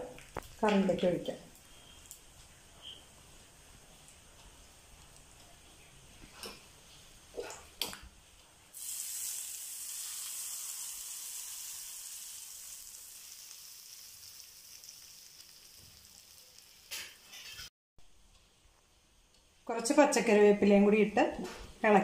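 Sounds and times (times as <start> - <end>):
hot oil sizzling: 8.7 - 17.7.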